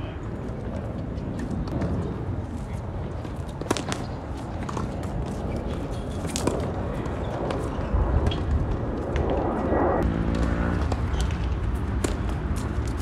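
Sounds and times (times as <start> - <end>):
steady low rumble: 0.0 - 10.1
tennis ball hits and bounces: 3.6 - 6.7, 10.3 - 13.0.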